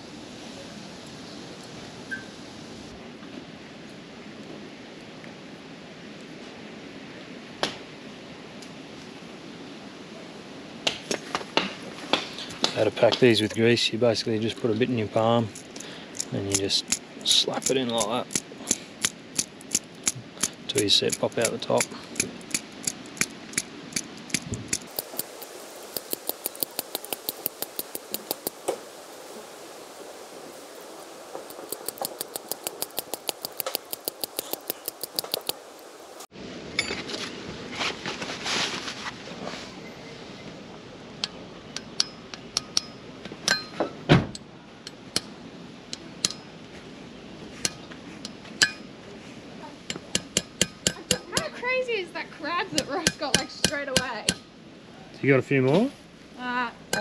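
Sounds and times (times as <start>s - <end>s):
sticky clicks and smacks of grease: 15.6s - 28.6s, 31.4s - 35.6s
hammer tapping on metal: 49.9s - 51.5s, 52.7s - 54.5s.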